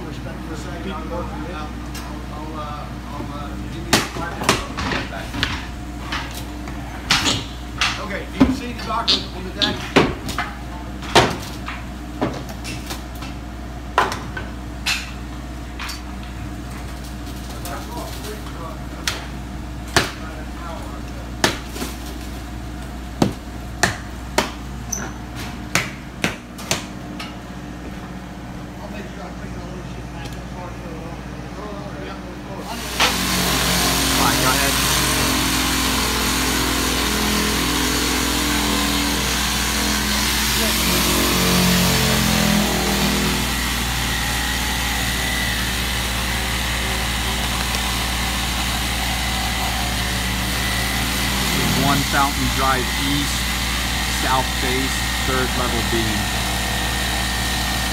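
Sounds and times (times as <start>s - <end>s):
steady low hum: 49.5s - 57.1s.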